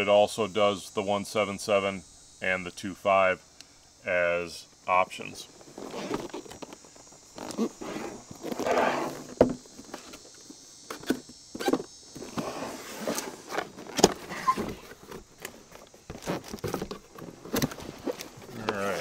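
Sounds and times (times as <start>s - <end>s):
box lid scraping and rustling: 5.6s - 10.3s, 10.9s - 19.0s
cardboard box sliding on table: 7.6s - 9.6s, 12.2s - 15.0s.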